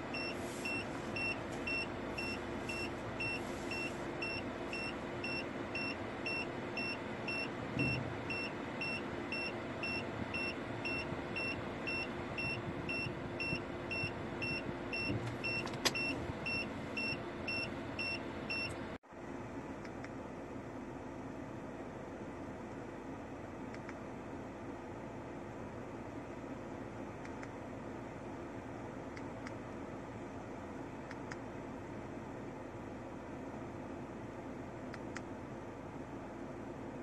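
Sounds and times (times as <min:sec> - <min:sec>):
engine hum: 0:00.0 - 0:37.0
reversing warning beeps: 0:00.1 - 0:18.8.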